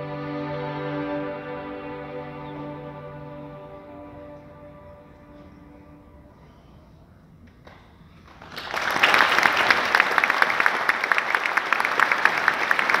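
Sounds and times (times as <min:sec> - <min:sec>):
audience applause: 0:08.2 - 0:13.0.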